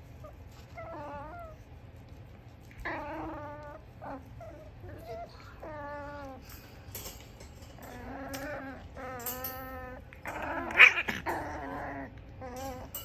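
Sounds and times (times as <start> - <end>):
puppies whining: 0.0 - 2.0, 2.6 - 13.0
puppy harsh cry: 7.8 - 13.0.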